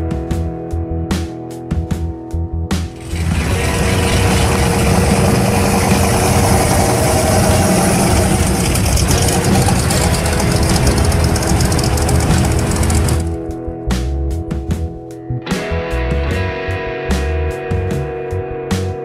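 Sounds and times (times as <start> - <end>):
car engine driving slowly away: 3.0 - 13.4.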